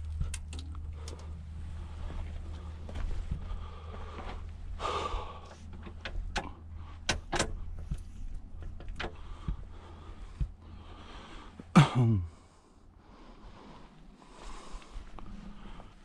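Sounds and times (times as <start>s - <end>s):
steady low hum: 0.0s - 16.0s
sharp clicks and knocks: 5.6s - 10.6s.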